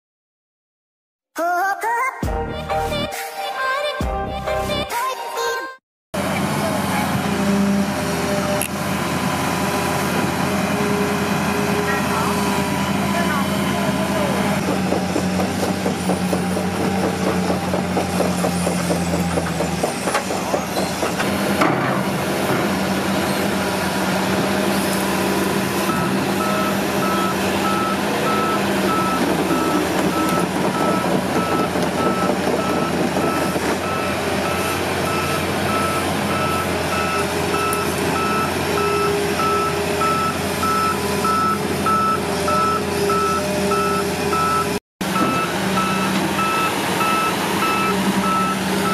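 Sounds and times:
excavator diesel engine running: 0:06.2 - 0:48.9
travel alarm beeping: 0:25.9 - 0:48.9.

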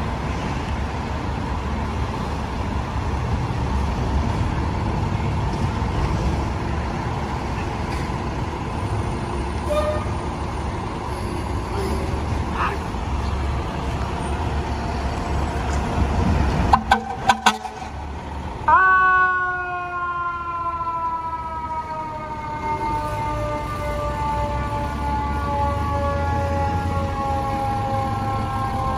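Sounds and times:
fire engine diesel rumbling: 0:00.0 - 0:28.9
sharp horn blasts: 0:16.7 - 0:17.9
siren rising and falling: 0:18.7 - 0:28.9.

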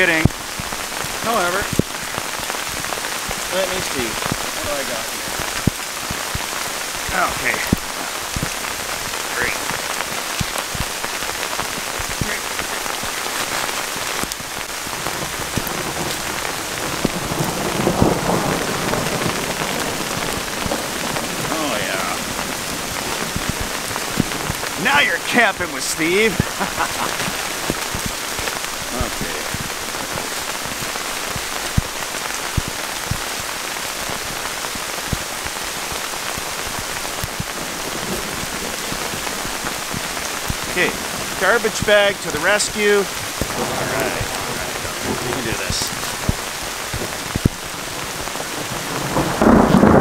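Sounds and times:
heavy rain: 0:00.0 - 0:50.0
rain drops ticking: 0:00.0 - 0:50.0
thunder rolling: 0:14.8 - 0:33.4, 0:35.0 - 0:50.0.

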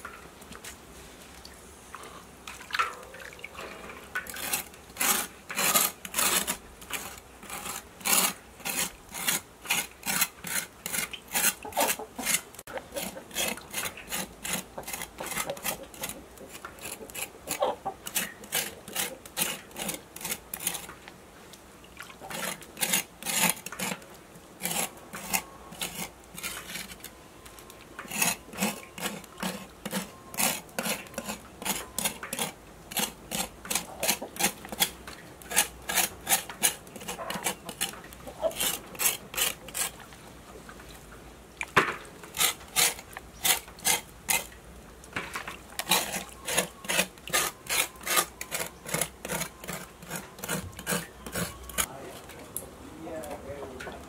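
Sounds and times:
cleaver blade scraping pork skin: 0:04.3 - 0:20.9, 0:22.3 - 0:24.0, 0:24.6 - 0:27.1, 0:28.0 - 0:40.0, 0:42.3 - 0:44.5, 0:45.8 - 0:52.3.

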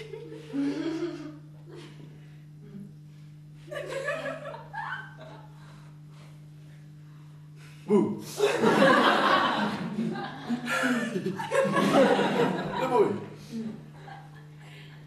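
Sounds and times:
low electrical hum: 0:00.0 - 0:15.0
audience laughing: 0:08.3 - 0:15.0.

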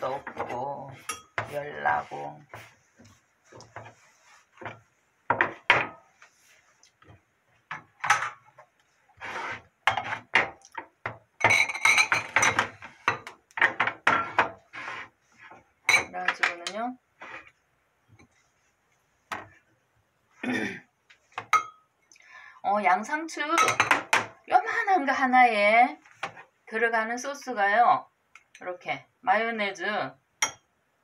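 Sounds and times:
glass and ceramic clinking: 0:11.4 - 0:13.2, 0:21.4 - 0:21.9, 0:30.4 - 0:30.7.

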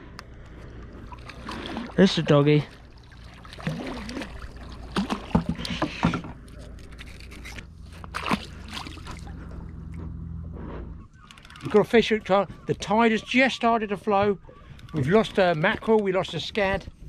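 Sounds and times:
low steady hum: 0:00.0 - 0:17.0
splash in water: 0:01.1 - 0:05.5, 0:08.1 - 0:09.3.

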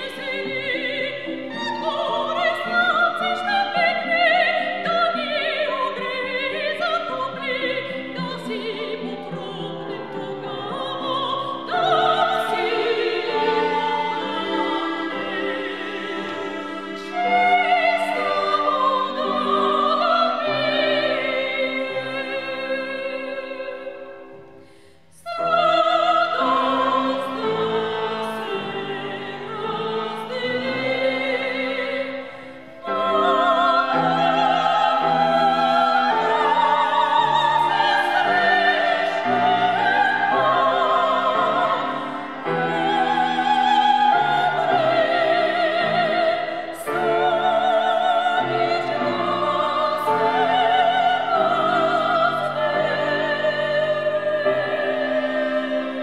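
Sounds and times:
sopranos singing operatically: 0:00.0 - 0:24.2, 0:25.2 - 0:56.0
cello: 0:00.0 - 0:56.0
piano: 0:00.0 - 0:56.0.

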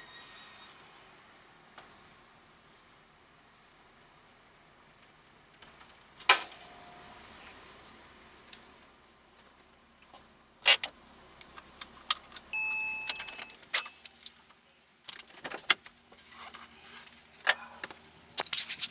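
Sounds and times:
electronic beep: 0:12.6 - 0:14.0.

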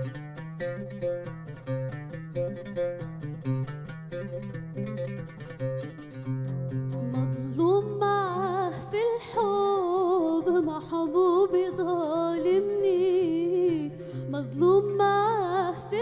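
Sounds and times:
low oud notes: 0:00.0 - 0:16.0
woman singing with vibrato: 0:07.0 - 0:16.0.

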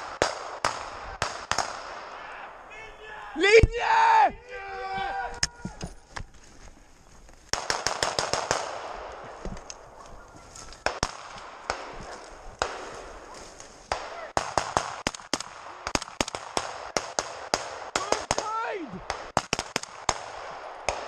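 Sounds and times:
rifle gunshots: 0:00.0 - 0:02.2, 0:07.5 - 0:10.0, 0:10.8 - 0:21.0.

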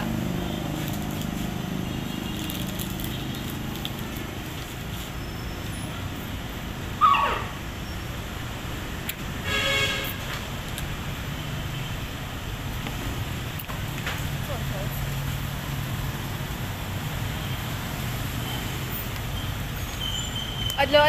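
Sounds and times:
street traffic rumble: 0:00.0 - 0:21.0
vehicle horn toot: 0:09.4 - 0:10.3
sharp falling squeal: 0:19.8 - 0:20.8.

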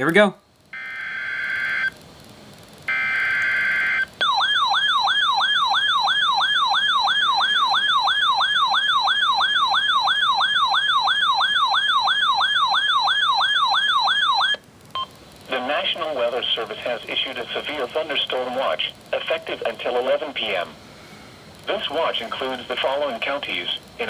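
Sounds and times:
screechy digital data tones: 0:00.8 - 0:02.0, 0:02.9 - 0:14.6
warbling radio alert tone: 0:02.9 - 0:14.6.

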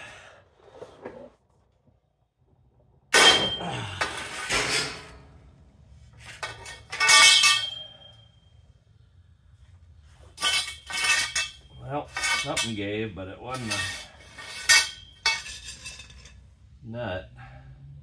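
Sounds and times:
steel tools clanking: 0:03.1 - 0:05.3, 0:06.1 - 0:08.3, 0:10.3 - 0:16.5.

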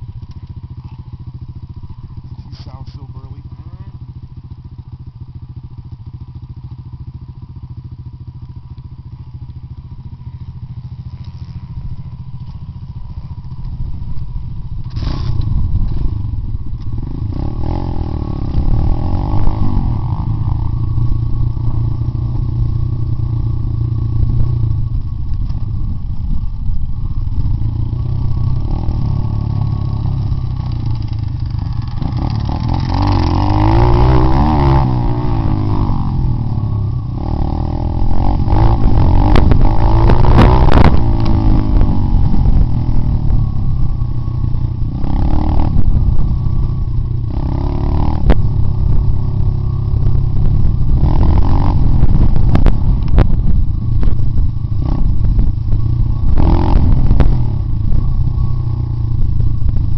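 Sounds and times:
motorbike engine revving: 0:00.0 - 0:59.9.

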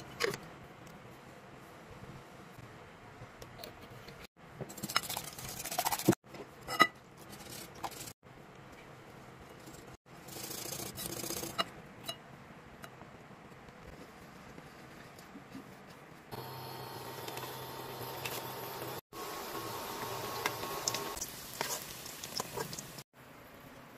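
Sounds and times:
whisk beating eggs: 0:04.7 - 0:06.2.

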